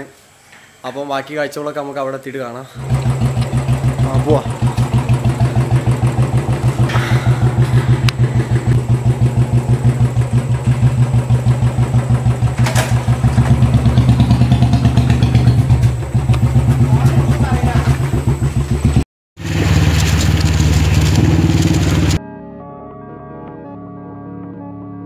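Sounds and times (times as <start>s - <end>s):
motorcycle engine idling: 2.8s - 22.2s.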